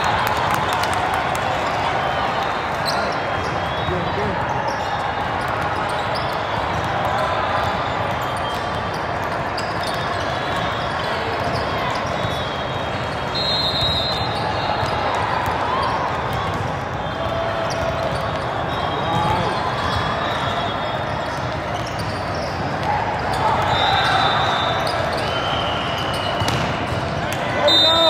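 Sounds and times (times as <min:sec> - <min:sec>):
volleyballs thudding and slapping: 0:26.4 - 0:27.5.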